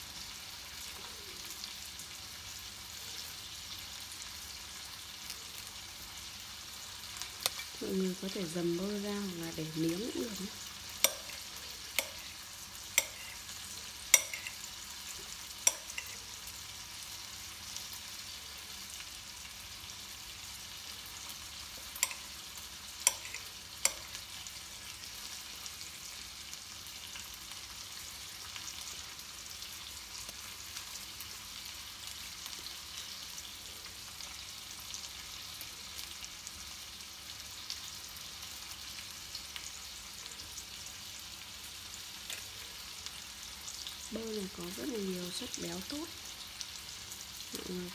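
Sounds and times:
knife tapping ceramic bowl: 0:11.0 - 0:11.4, 0:12.0 - 0:12.3, 0:13.0 - 0:13.4, 0:14.2 - 0:14.6, 0:15.7 - 0:16.2, 0:22.0 - 0:22.2, 0:23.1 - 0:24.1.

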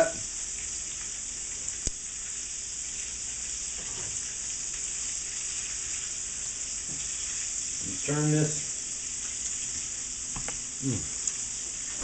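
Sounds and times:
chicken deep-frying in oil: 0:00.0 - 0:12.0.

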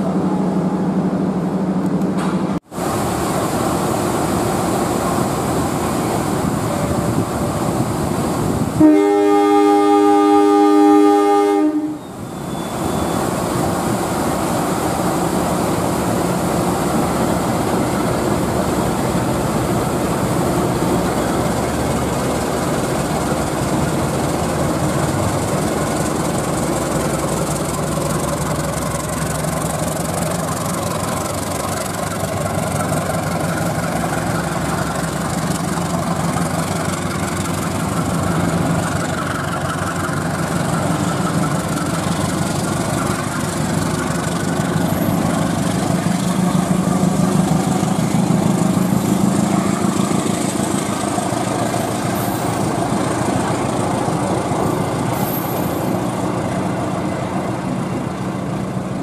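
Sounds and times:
diesel locomotive running: 0:00.0 - 0:59.0
locomotive horn blast: 0:08.8 - 0:13.2.

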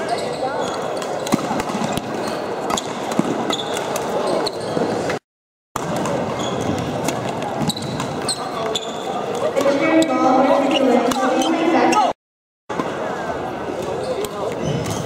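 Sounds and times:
shoe squeaks on court floor: 0:00.0 - 0:05.2, 0:06.3 - 0:07.0, 0:07.6 - 0:09.4, 0:13.9 - 0:15.0
racket hitting shuttlecock: 0:01.0 - 0:04.1
murmur of voices: 0:05.8 - 0:15.0.

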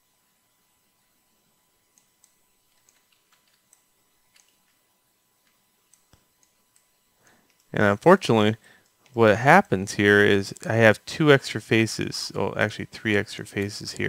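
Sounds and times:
mouse and keyboard clicks: 0:02.0 - 0:04.8.

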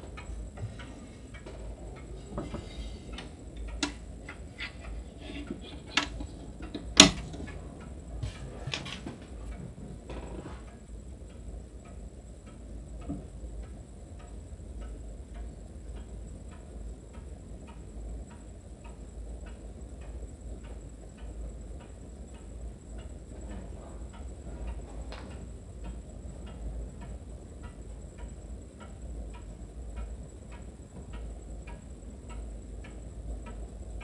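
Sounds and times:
pendulum wall clock ticking: 0:00.0 - 0:34.0
loud clock click: 0:03.1 - 0:07.6.

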